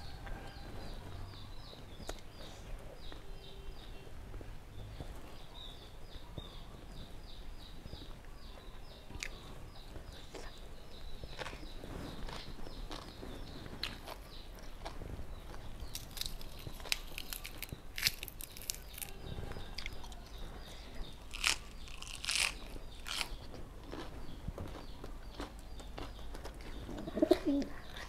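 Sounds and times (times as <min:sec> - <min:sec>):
person chewing crunchy food: 0:10.1 - 0:28.0.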